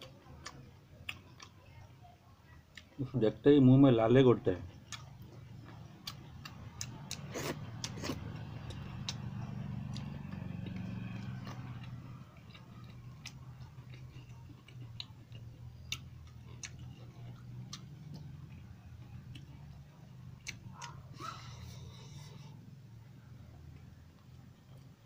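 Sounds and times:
wet chewing smacks: 4.8s - 22.4s.

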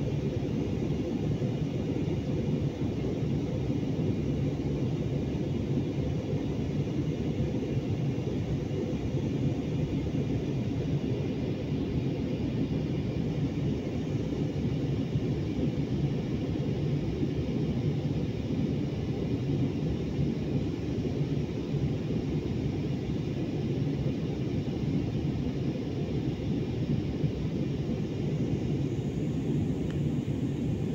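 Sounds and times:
jet cabin engine drone: 0.0s - 30.9s.

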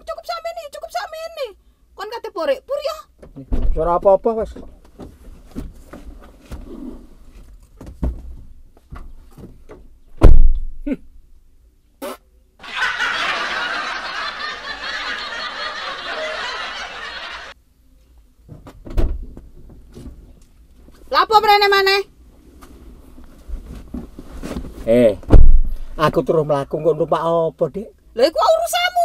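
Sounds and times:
loud thump: 3.5s - 3.8s, 10.2s - 10.8s, 25.2s - 26.2s
canned audience laughter: 12.6s - 17.6s.

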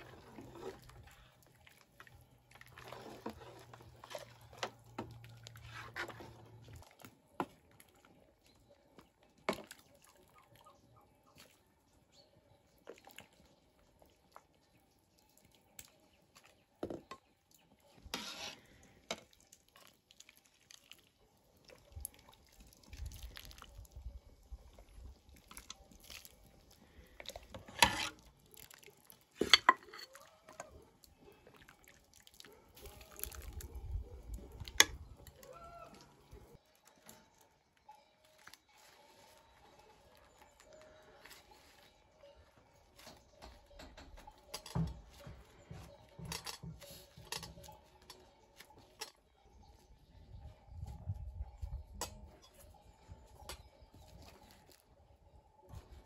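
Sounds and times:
broth pouring and dripping: 18.6s - 36.9s
metal ladle clinking on pots: 29.4s - 30.2s.

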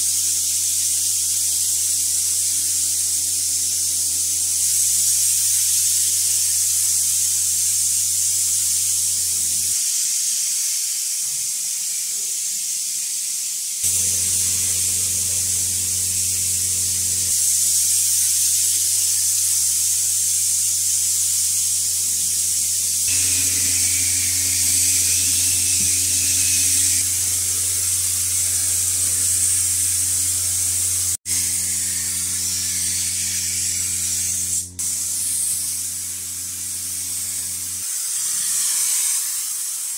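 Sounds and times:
paint spray gun hissing: 0.0s - 39.9s
low hum: 13.9s - 21.2s.

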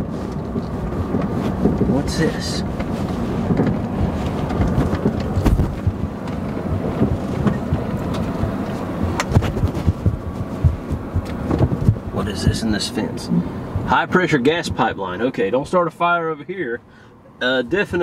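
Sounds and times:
engine and tyres rumbling: 0.0s - 18.0s
knocks from bumps: 2.8s - 12.1s.

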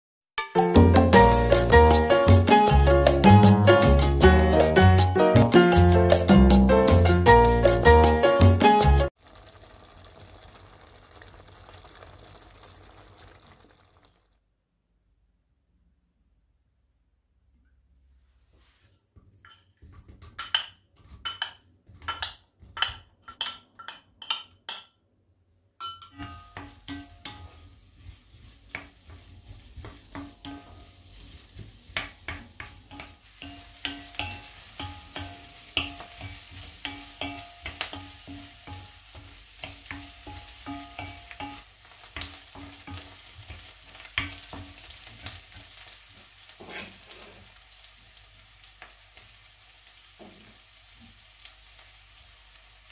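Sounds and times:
onions sizzling in hot oil: 1.2s - 14.3s, 26.2s - 52.9s
wooden spoon stirring in pot: 9.2s - 14.2s, 26.2s - 47.6s.

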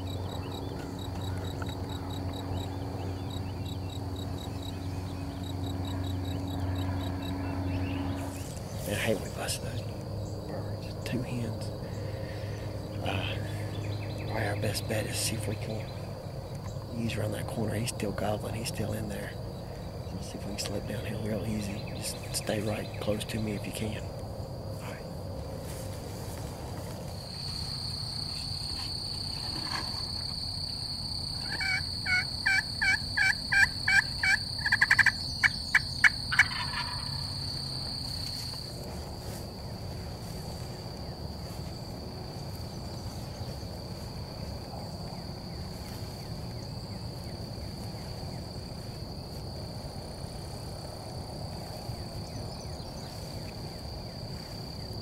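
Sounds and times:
wild turkey calling: 0.0s - 9.6s, 31.3s - 37.6s.

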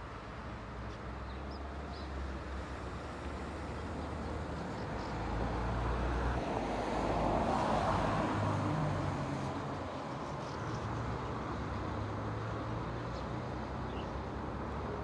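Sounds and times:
small birds chirping: 0.9s - 2.3s, 3.6s - 5.4s, 10.1s - 11.1s, 13.0s - 14.2s.

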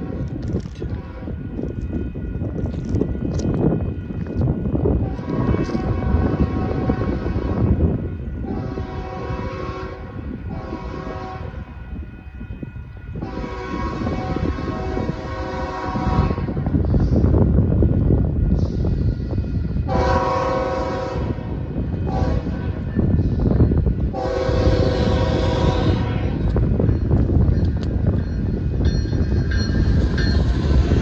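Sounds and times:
low train rumble: 0.0s - 31.0s
locomotive horn chord: 8.4s - 11.7s, 13.2s - 16.6s, 19.9s - 21.5s, 22.1s - 22.8s, 24.1s - 26.5s.

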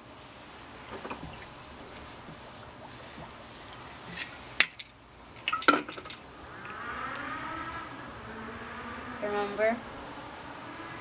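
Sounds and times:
bottle clicks and clinks: 4.2s - 6.2s.

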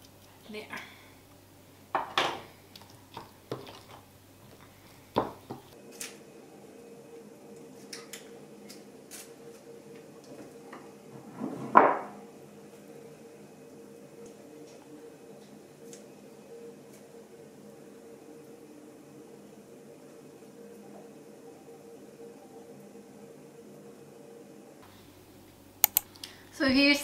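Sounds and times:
spatula scraping: 3.1s - 4.7s.

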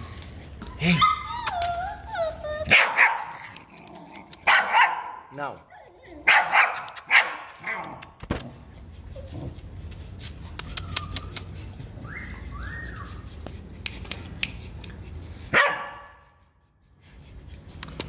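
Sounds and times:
puppies whimpering: 0.0s - 2.7s, 5.6s - 6.3s, 10.5s - 13.7s
puppy yapping: 0.8s - 3.6s.

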